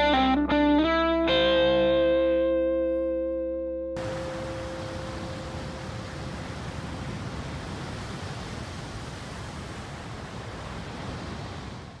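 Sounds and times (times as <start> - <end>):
guitar notes: 0.0 - 5.9
ocean surf: 4.0 - 12.0
wind: 4.0 - 12.0.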